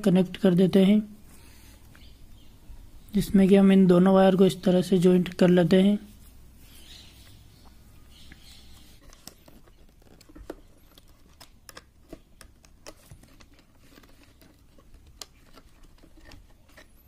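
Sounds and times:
wires being twisted: 8.3s - 17.0s.

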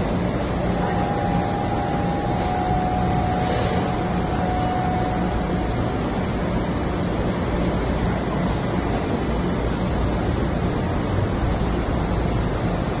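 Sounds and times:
machine running: 0.0s - 8.4s
low machine hum: 0.0s - 13.0s.

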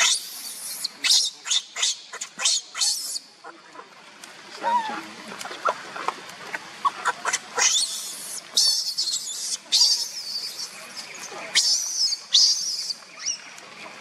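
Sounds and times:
infant monkey screaming: 0.0s - 3.2s, 4.6s - 5.8s, 6.8s - 10.8s, 11.5s - 13.4s.

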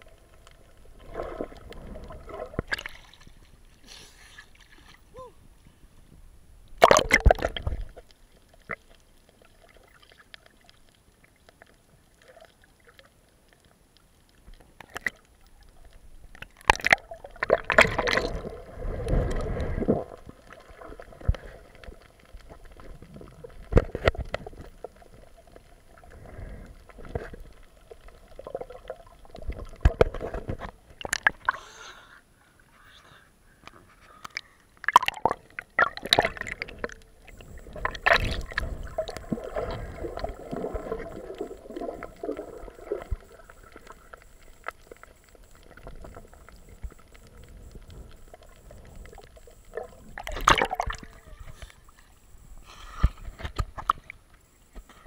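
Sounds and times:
muffled underwater sloshing: 0.0s - 13.5s, 14.2s - 31.5s, 33.9s - 55.0s
splash into water: 6.8s - 7.7s, 49.7s - 51.6s.

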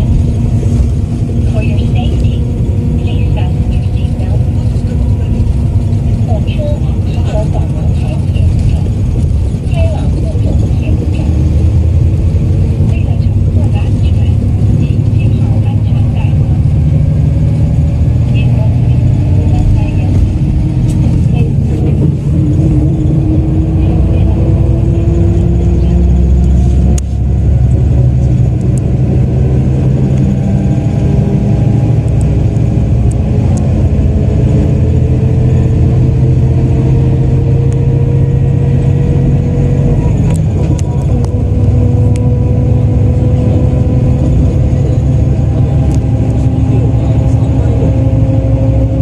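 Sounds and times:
coach diesel engine pulling: 0.0s - 49.0s.

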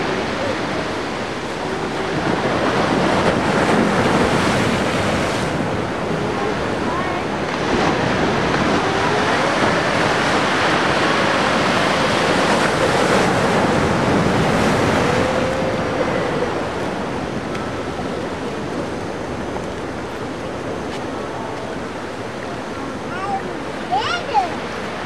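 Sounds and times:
ocean waves breaking: 0.0s - 25.0s.

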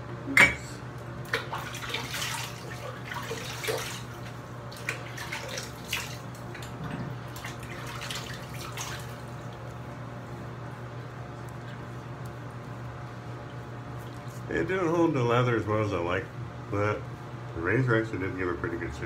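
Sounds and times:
water splashing on face: 1.2s - 9.9s.

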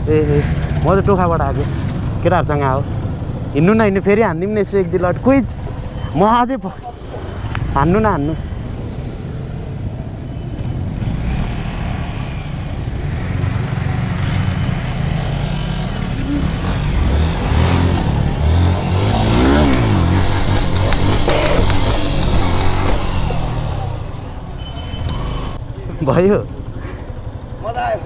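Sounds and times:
motorcycle engine revving: 7.0s - 27.7s.

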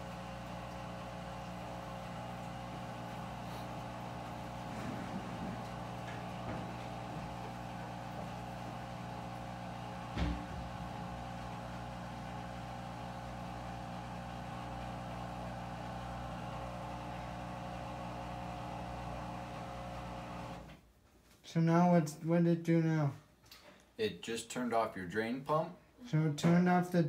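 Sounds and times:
washing machine pump humming: 0.0s - 20.8s
short knock: 10.2s - 10.8s.

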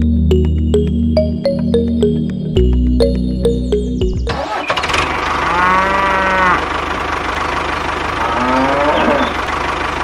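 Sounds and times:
tractor engine running: 0.0s - 5.6s, 6.6s - 8.5s, 9.1s - 10.0s
cow mooing: 5.3s - 6.7s, 8.2s - 9.4s.

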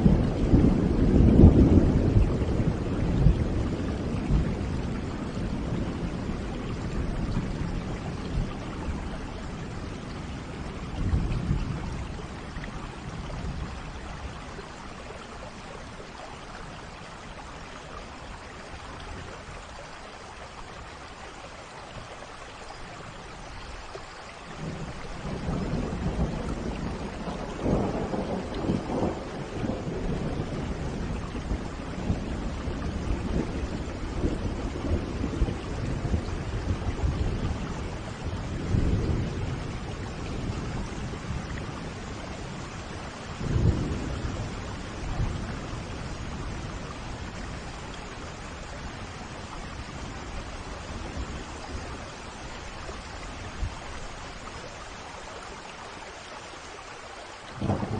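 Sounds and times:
rolling thunder: 0.0s - 14.6s, 24.6s - 52.2s, 57.6s - 57.9s
rain falling: 0.0s - 57.9s.

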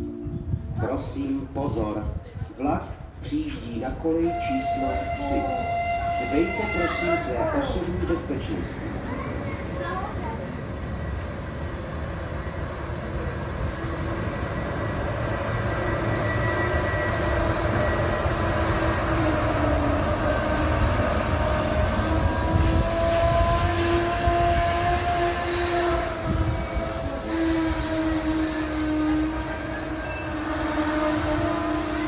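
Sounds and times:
train rumble: 0.0s - 32.0s
locomotive whining tones: 3.8s - 32.0s.

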